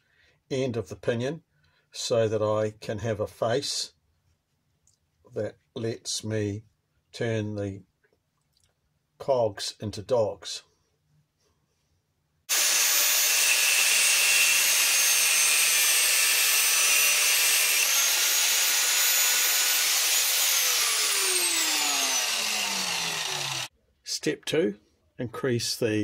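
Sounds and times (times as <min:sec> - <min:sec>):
angle grinder grinding steel: 0:12.5 - 0:23.7.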